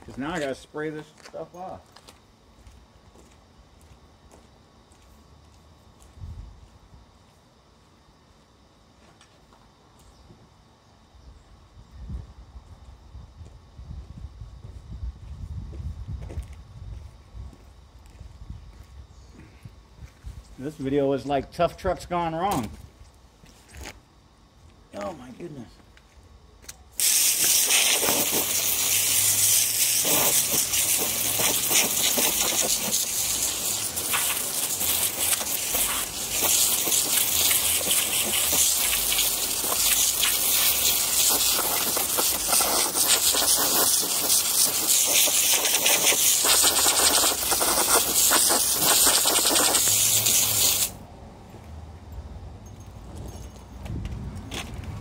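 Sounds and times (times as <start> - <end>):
water spraying from hose nozzle: 27.0 - 51.0.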